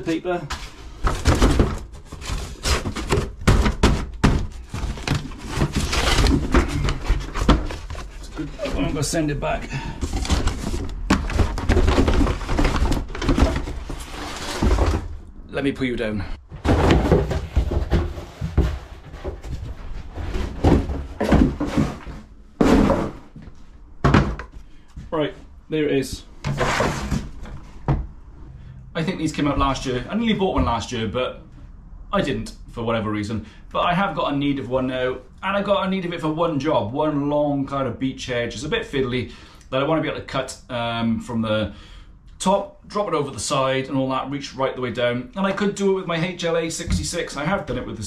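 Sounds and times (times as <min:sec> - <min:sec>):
cardboard scraping and rustling: 0:00.4 - 0:15.2, 0:16.5 - 0:23.4, 0:26.4 - 0:28.0
cardboard box thuds: 0:01.0 - 0:08.2, 0:16.6 - 0:19.6, 0:20.3 - 0:23.2.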